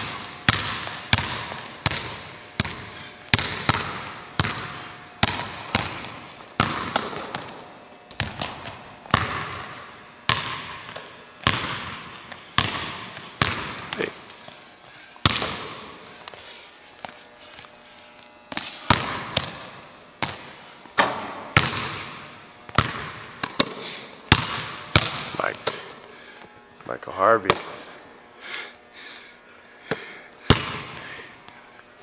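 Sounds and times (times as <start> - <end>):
basketball bouncing on hardwood: 0.0 - 14.0, 15.2 - 15.9, 18.5 - 23.7, 24.3 - 25.8
shoe squeaks: 9.5 - 9.9, 14.4 - 14.9, 18.5 - 19.7.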